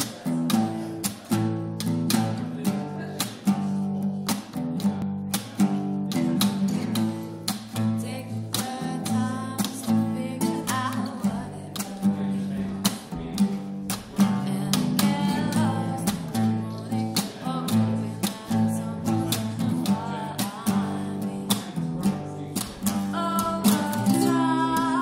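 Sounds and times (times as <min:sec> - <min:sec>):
acoustic guitar strumming: 0:00.0 - 0:25.0
woman singing: 0:06.6 - 0:12.6, 0:14.2 - 0:25.0.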